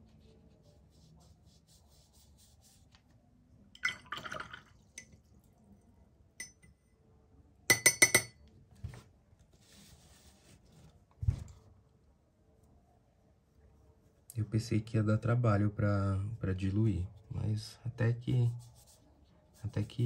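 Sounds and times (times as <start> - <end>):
brush clinking against water cup: 3.8 - 5.2, 6.4 - 6.8, 7.7 - 8.4.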